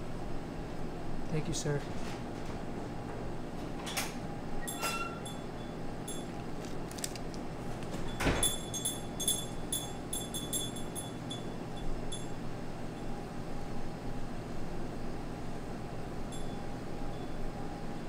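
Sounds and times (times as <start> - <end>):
room hum: 0.0 - 18.0
light metallic clinking: 8.1 - 12.4.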